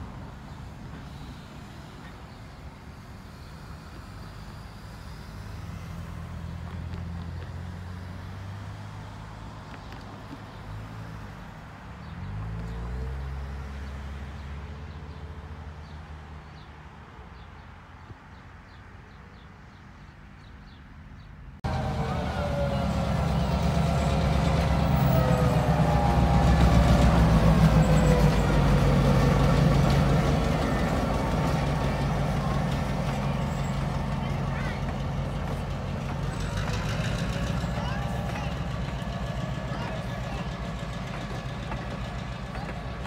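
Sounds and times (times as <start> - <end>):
diesel locomotive engine running: 0.0 - 11.6, 21.6 - 43.0.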